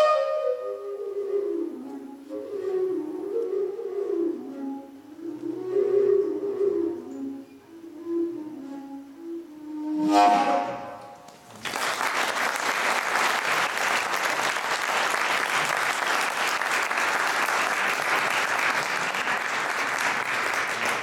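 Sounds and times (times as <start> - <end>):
flute note: 0.0 - 11.3
audience applause: 11.3 - 21.0.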